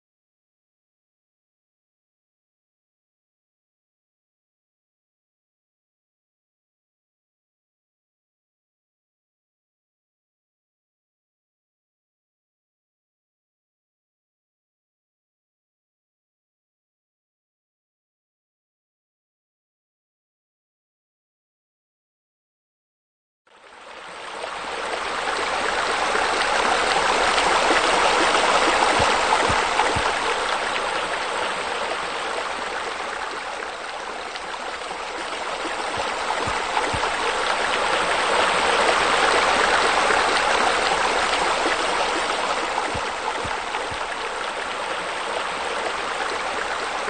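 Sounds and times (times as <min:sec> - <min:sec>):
running water: 0:23.5 - 0:47.0.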